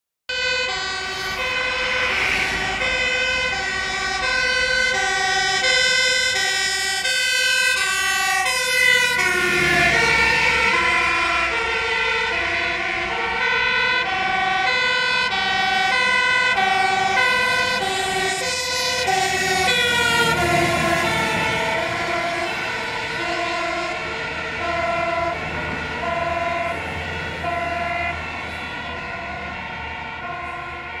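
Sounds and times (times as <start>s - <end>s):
engines rumbling: 0.3s - 31.0s
two-tone fire engine sirens: 0.3s - 31.0s.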